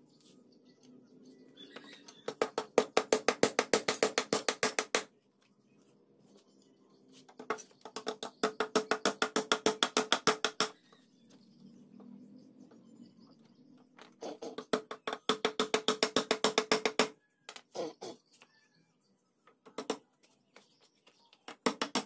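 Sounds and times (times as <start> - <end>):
hammer striking nails into wood: 2.2 - 5.1, 8.0 - 10.8, 14.7 - 17.2, 21.6 - 22.0.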